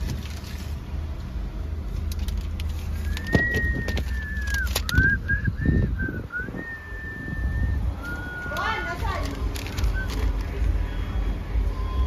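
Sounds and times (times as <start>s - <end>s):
low engine hum: 0.0s - 12.0s
high thin whistle: 3.1s - 8.8s.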